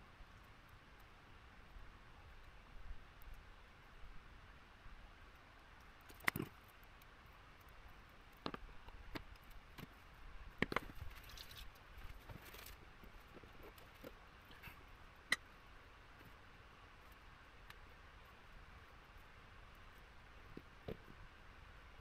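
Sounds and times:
faint rustle: 5.6 - 22.0.

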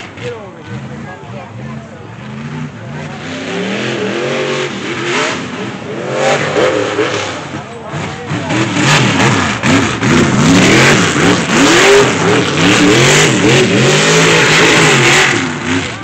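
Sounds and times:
truck engine revving hard: 0.0 - 16.0.

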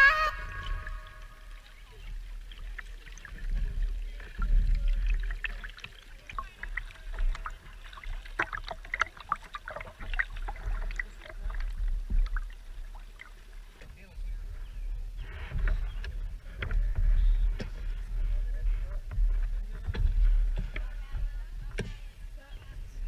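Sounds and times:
paddle water splashing: 0.0 - 23.0
low rumble: 14.3 - 23.0.

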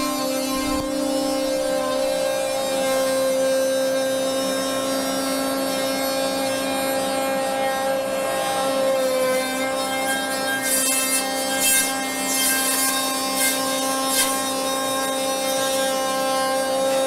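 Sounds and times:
bit rasping into wood: 0.0 - 6.6, 8.4 - 17.0
router spindle whine: 0.0 - 17.0.

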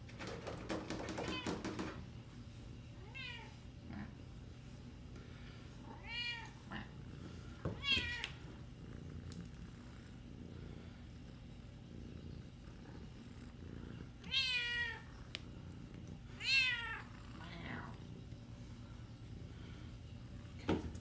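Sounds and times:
cat purring: 8.4 - 21.0.

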